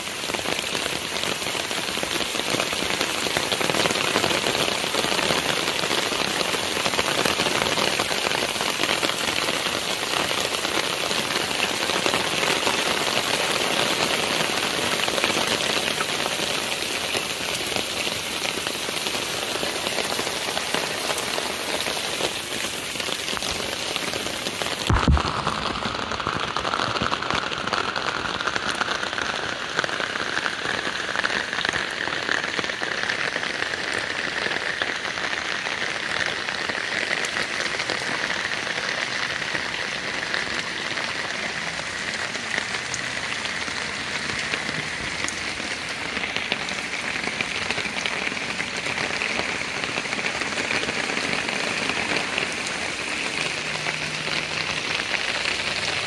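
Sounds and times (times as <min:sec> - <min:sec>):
rain falling on puddles: 0:00.0 - 0:56.0
low thump: 0:24.9 - 0:25.8.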